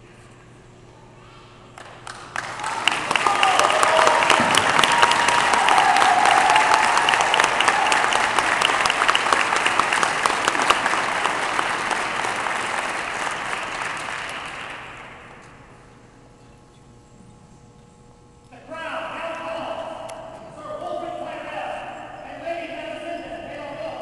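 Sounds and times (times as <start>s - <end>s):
audience applauding: 1.8s - 15.5s.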